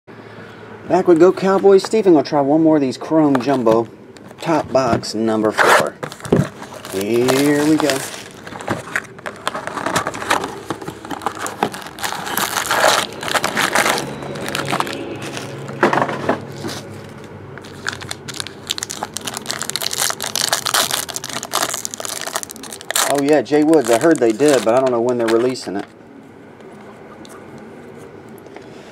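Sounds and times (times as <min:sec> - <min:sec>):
foil packs crinkling and tearing: 0:05.4 - 0:15.8, 0:17.6 - 0:25.9
cardboard box opening: 0:05.5 - 0:15.8.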